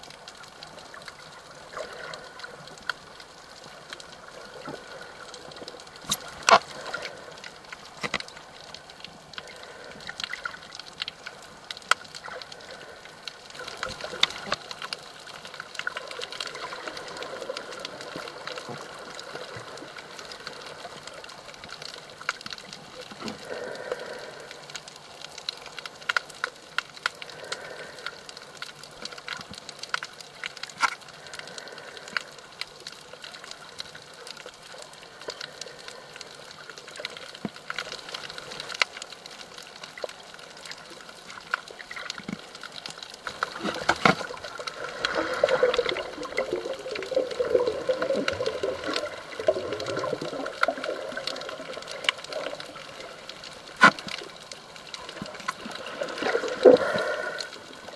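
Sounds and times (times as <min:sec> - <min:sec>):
underwater wash: 0:00.0 - 0:57.9
sharp underwater clicks: 0:00.1 - 0:57.9
water gurgling and bubbling: 0:43.4 - 0:53.8, 0:54.4 - 0:57.9.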